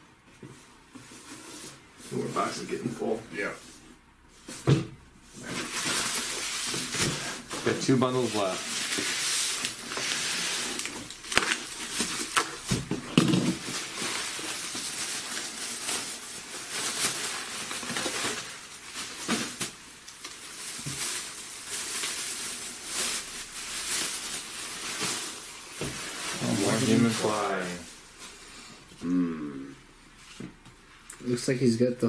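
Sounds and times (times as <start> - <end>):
bubble wrap crinkling: 5.3 - 28.5
bubble wrap snapping: 8.6 - 27.8.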